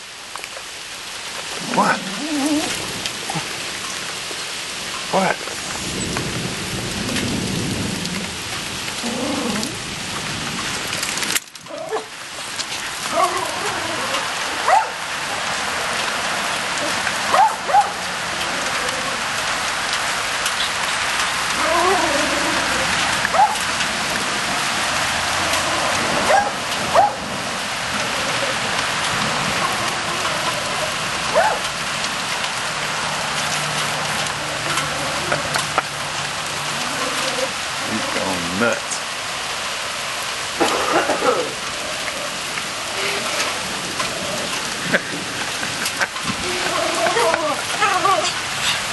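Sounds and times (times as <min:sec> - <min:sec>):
steady rain: 0:00.0 - 0:48.9
dog barking: 0:14.6 - 0:15.0, 0:16.8 - 0:18.0, 0:23.3 - 0:23.6, 0:26.2 - 0:27.2, 0:31.3 - 0:31.7.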